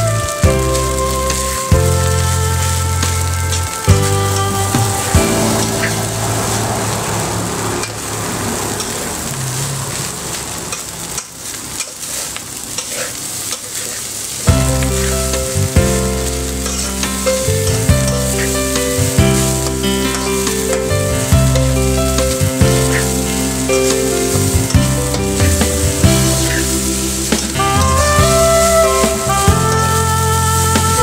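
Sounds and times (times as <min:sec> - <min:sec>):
music with strong bass: 0:00.0 - 0:07.5, 0:14.5 - 0:31.0
rice sizzling in a wok: 0:00.0 - 0:31.0
spatula scraping a wok: 0:00.7 - 0:31.0.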